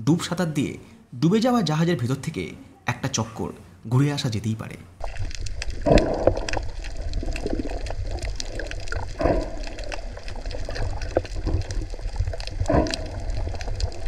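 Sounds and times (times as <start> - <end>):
bubbly water surges: 5.0 - 14.0
crackling clicks and gurgling: 5.0 - 14.0
muffled underwater wash: 5.0 - 14.0.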